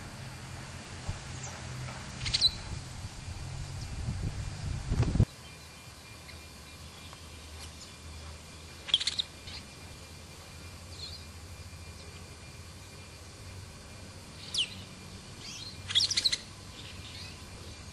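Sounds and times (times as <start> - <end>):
low rumble: 0.0 - 5.3.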